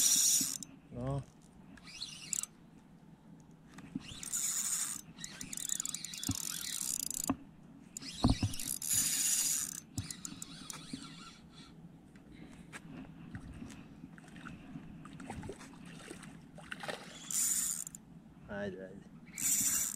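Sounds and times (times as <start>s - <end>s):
fishing reel gears whirring: 0.0s - 0.7s, 1.8s - 2.5s, 4.0s - 7.4s, 8.0s - 11.8s, 17.1s - 18.0s, 19.2s - 19.9s
light reel clicks: 1.8s - 2.5s, 4.1s - 7.3s, 8.0s - 11.4s, 19.3s - 19.9s.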